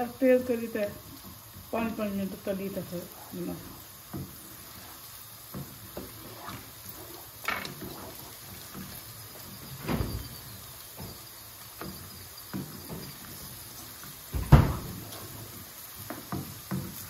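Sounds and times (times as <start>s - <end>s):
cupboard doors knocking: 14.3s - 14.9s.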